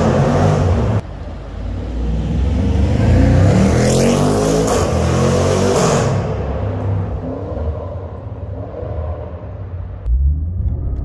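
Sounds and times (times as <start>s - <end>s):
car engine accelerating in tunnel: 0.0s - 11.0s.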